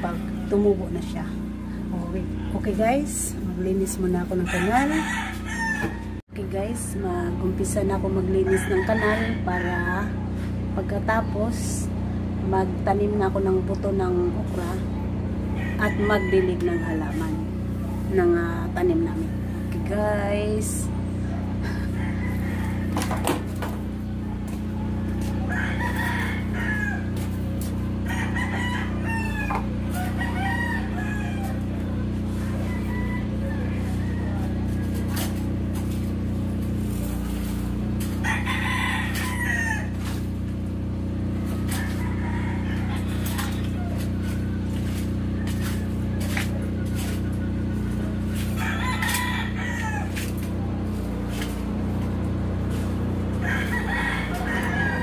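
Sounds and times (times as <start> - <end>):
construction vehicle engines droning: 0.0 - 55.0
low machine hum: 0.0 - 55.0
rooster crowing: 4.2 - 6.2, 8.3 - 10.3, 15.4 - 17.5, 21.3 - 23.6, 24.8 - 35.5, 37.0 - 51.6, 53.0 - 55.0.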